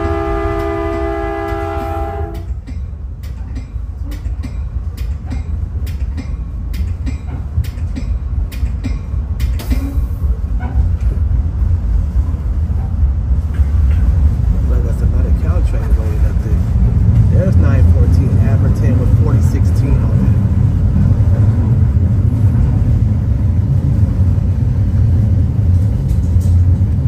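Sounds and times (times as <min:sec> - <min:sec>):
train horn chord: 0:00.0 - 0:02.5
train rumbling along: 0:00.0 - 0:27.0.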